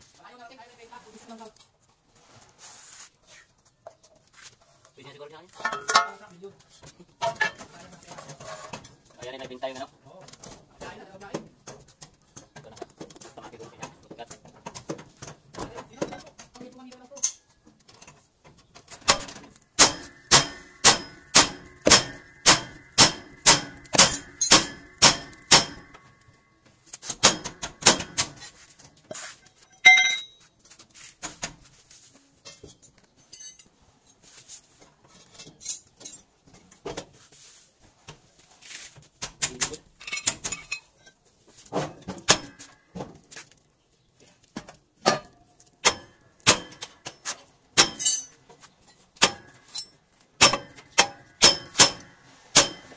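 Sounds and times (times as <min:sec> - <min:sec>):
metal tools clanking: 0:05.6 - 0:06.3, 0:07.2 - 0:09.6, 0:18.9 - 0:26.5, 0:29.5 - 0:30.4, 0:32.4 - 0:33.7, 0:39.4 - 0:42.8, 0:45.0 - 0:52.9
loud ringing clang: 0:19.1 - 0:26.3, 0:29.8 - 0:30.4
hammer striking steel: 0:19.1 - 0:26.4, 0:27.1 - 0:28.4, 0:42.2 - 0:42.8, 0:45.1 - 0:47.2, 0:47.8 - 0:48.4, 0:49.2 - 0:52.9.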